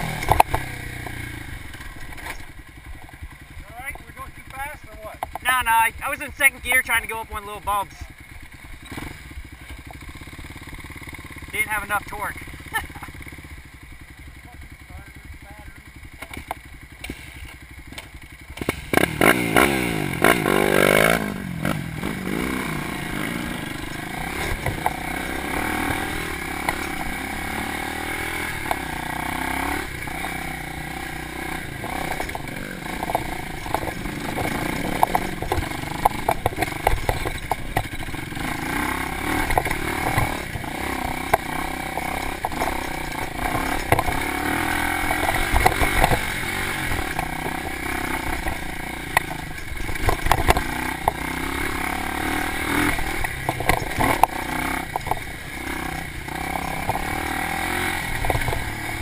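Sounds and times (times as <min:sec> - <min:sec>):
bike clattering over rough trail: 0:00.0 - 0:14.2, 0:15.2 - 0:59.0
dirt bike engine revving: 0:00.0 - 0:59.0.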